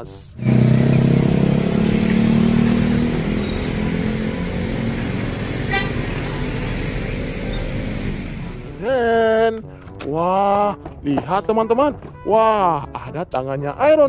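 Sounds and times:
cars and motorcycles: 0:00.0 - 0:09.6
bus engine passing: 0:00.4 - 0:09.5.

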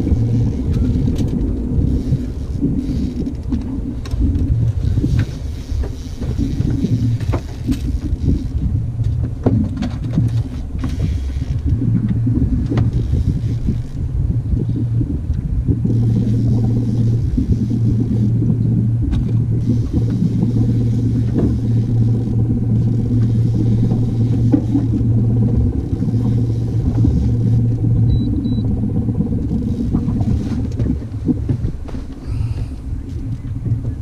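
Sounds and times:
outboard motor running: 0:00.0 - 0:34.0.

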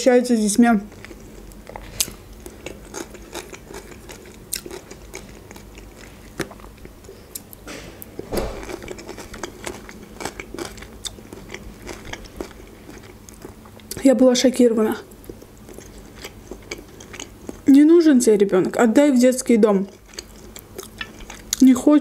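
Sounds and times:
soft crunching of salad: 0:00.8 - 0:14.2, 0:15.0 - 0:17.8, 0:19.7 - 0:21.8
person chewing: 0:00.9 - 0:14.1, 0:15.1 - 0:17.7, 0:19.9 - 0:21.6.

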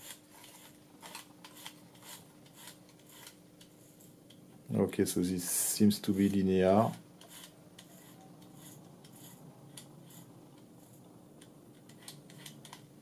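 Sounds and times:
small mechanical clicks and rubbing: 0:00.0 - 0:04.4, 0:07.2 - 0:12.9.

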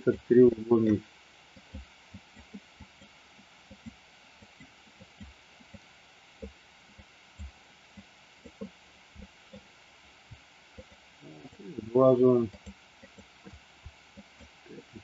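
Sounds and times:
faint hiss: 0:00.0 - 0:15.0
computer mouse clicking: 0:01.6 - 0:09.7, 0:12.5 - 0:14.5.

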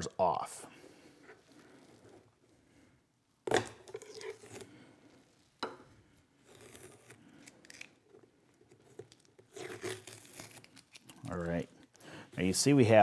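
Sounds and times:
tape ripping: 0:03.6 - 0:04.7, 0:06.4 - 0:12.0
tape peeling: 0:06.4 - 0:12.0.

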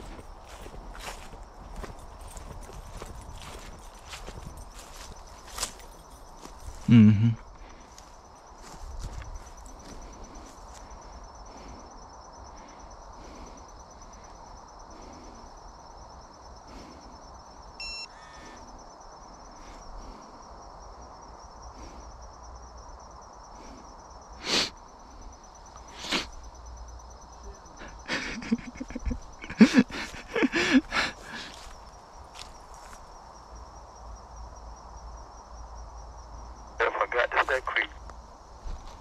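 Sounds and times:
rustles and steps on grass: 0:00.0 - 0:07.0, 0:38.6 - 0:39.0
high-pitched insect trill: 0:00.0 - 0:36.8
faint outdoor hiss: 0:00.0 - 0:39.0.

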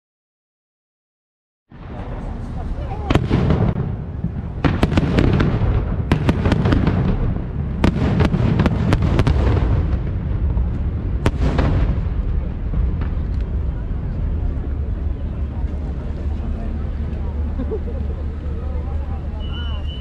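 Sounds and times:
fireworks bangs: 0:01.7 - 0:17.5
low rumble: 0:01.7 - 0:20.0.

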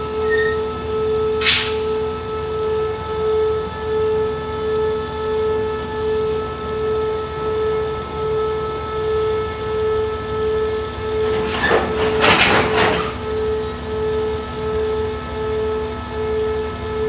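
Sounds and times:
wheels screeching on rails: 0:00.0 - 0:00.8, 0:10.8 - 0:14.9
diesel locomotive drone: 0:00.0 - 0:17.0.

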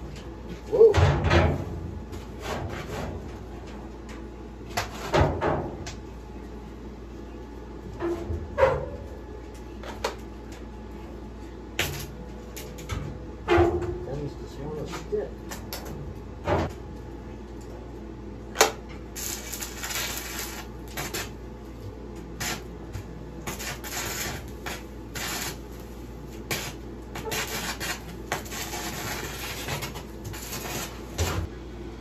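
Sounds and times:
arc welder crackling: 0:11.7 - 0:13.1, 0:14.0 - 0:31.5.

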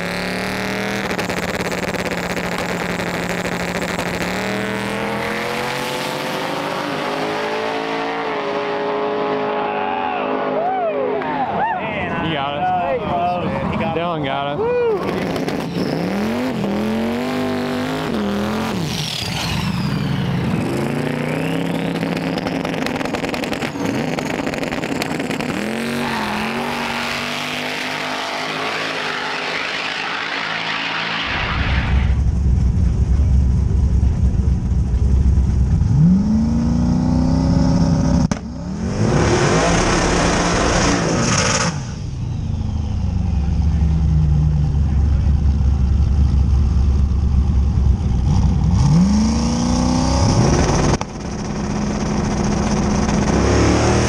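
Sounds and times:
drag car engine revving: 0:00.0 - 0:11.4, 0:15.0 - 0:54.0
car engine deep rumble: 0:00.0 - 0:54.0
loud rushing noise: 0:28.9 - 0:35.8.

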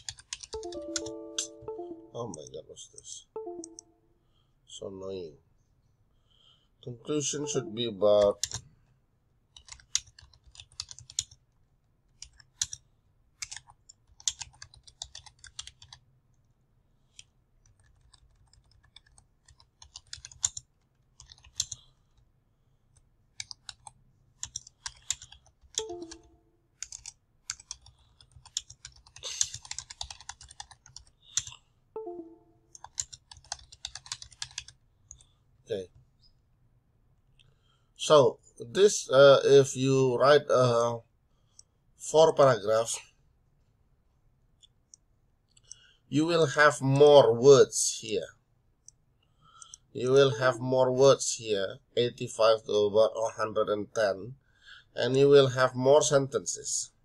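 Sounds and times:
typing on computer keyboard: 0:00.0 - 0:01.6, 0:09.5 - 0:11.4, 0:12.1 - 0:12.8, 0:13.4 - 0:16.0, 0:17.1 - 0:22.2, 0:22.9 - 0:35.3.

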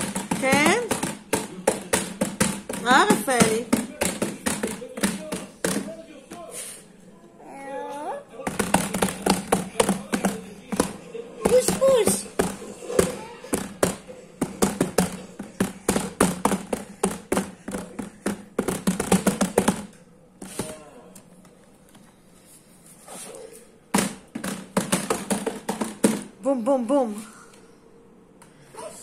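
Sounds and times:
hands slapping plastic basket: 0:00.0 - 0:06.5, 0:08.5 - 0:20.8.

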